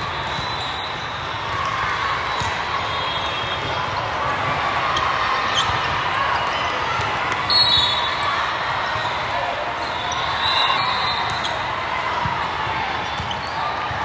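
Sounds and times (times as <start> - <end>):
volleyballs hit and bouncing: 0.0 - 9.9, 11.2 - 14.0.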